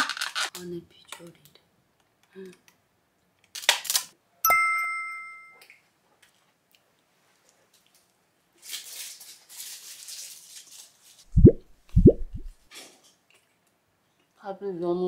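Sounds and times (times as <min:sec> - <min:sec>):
bright bell-like chime: 0:04.5 - 0:05.6
wet chewing mouth noises: 0:11.3 - 0:12.5.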